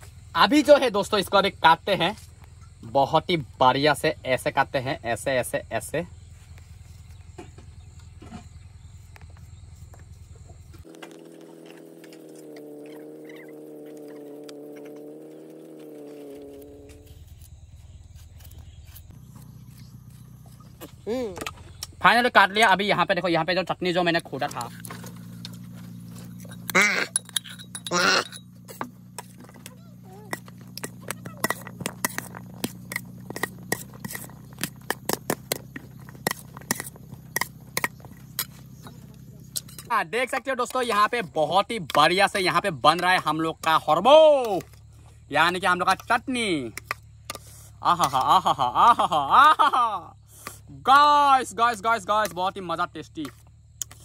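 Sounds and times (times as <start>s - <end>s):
knife cutting cucumber: 17.0s - 21.5s
spoon clinking and scraping plate: 26.4s - 28.8s.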